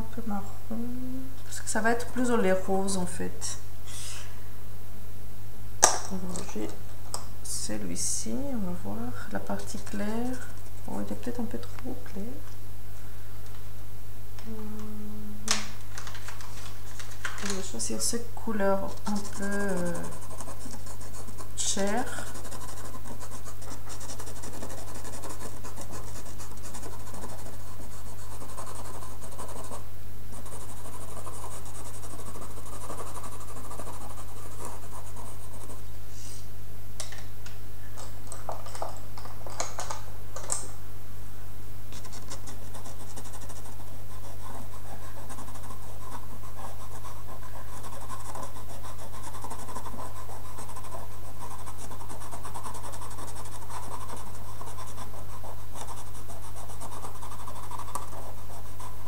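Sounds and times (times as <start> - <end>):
low electrical hum: 0.0 - 59.0
pencil scratching on paper: 18.8 - 35.8, 42.0 - 59.0.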